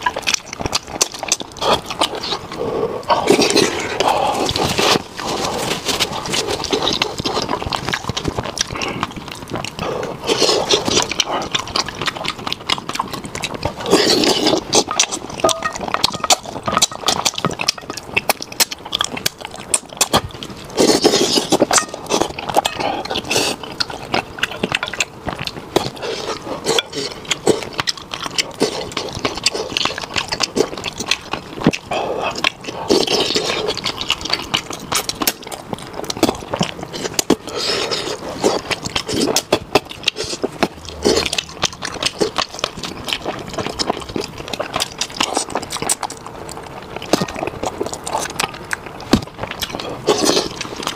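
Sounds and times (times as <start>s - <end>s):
slurping: 0.0s - 50.9s
wet chewing and sucking: 0.0s - 50.9s.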